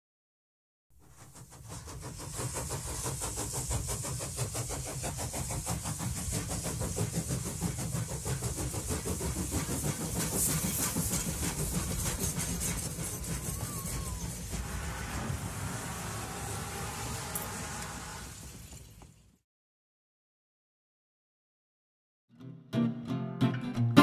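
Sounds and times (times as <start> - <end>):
steam locomotive chuffing: 0.9 - 19.4
steam hissing: 1.0 - 19.3.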